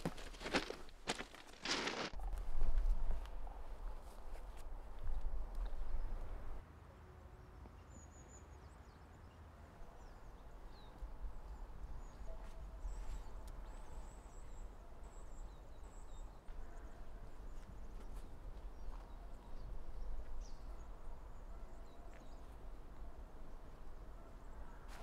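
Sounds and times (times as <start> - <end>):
footsteps through undergrowth: 0.0 - 5.9.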